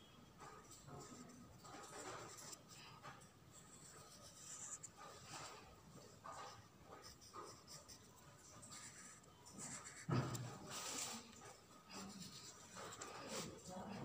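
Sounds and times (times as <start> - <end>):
crayon scratching on paper: 0.4 - 14.0
thump: 10.1 - 10.7.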